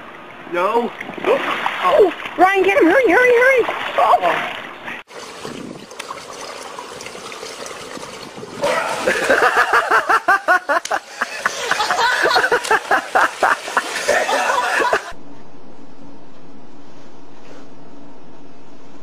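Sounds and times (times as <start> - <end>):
water splashing: 0.0 - 15.2
steady hum: 0.0 - 19.0
people laughing hard: 8.9 - 15.2.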